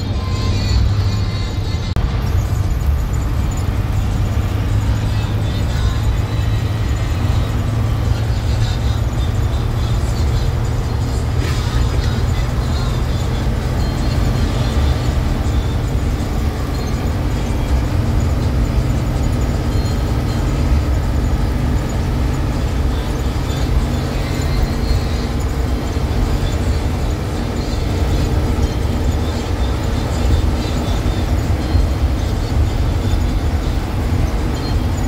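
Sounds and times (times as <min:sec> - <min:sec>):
bus engine and road rumble: 0:00.0 - 0:35.0.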